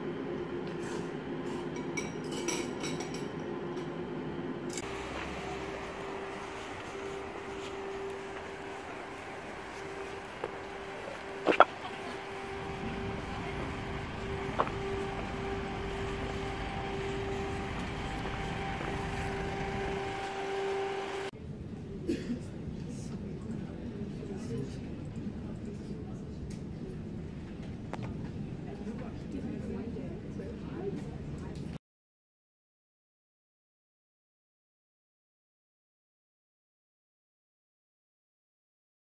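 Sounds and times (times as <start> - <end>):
street ambience rumble: 0.1 - 21.3
steady hum: 2.9 - 21.3.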